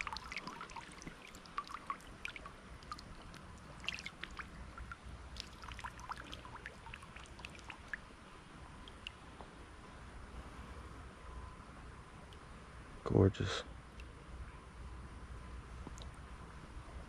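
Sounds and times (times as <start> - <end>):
water trickling and dripping: 0.0 - 9.6, 13.8 - 14.2, 15.8 - 16.7.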